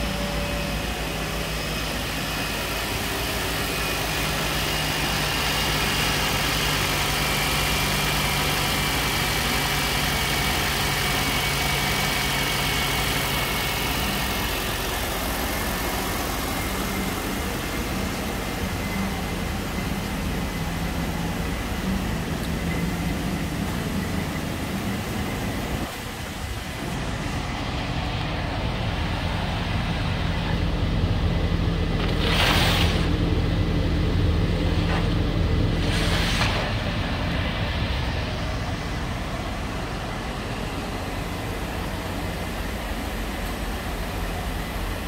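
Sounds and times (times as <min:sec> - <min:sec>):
car engine idling: 0:00.0 - 0:45.0
short rushes of noise: 0:32.0 - 0:33.2, 0:35.8 - 0:37.0.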